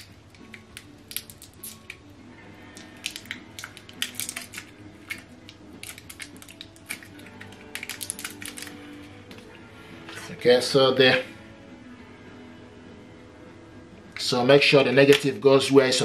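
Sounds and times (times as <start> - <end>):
batteries clicking in fingers: 2.7 - 8.8.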